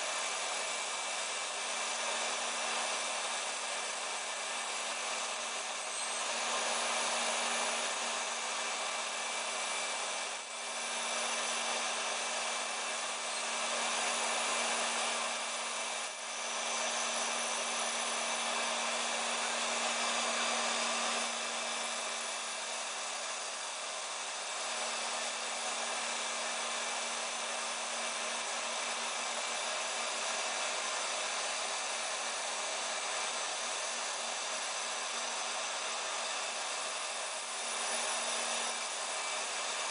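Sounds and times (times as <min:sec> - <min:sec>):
router spindle whirring: 0:00.0 - 0:39.9
vacuum hose suction: 0:00.0 - 0:39.9.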